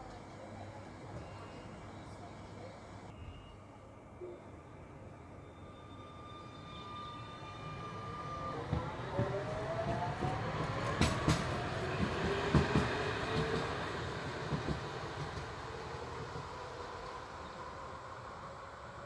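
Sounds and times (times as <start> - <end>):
tram motor whine: 3.0 - 19.0
wheel clacks on track: 10.2 - 13.6.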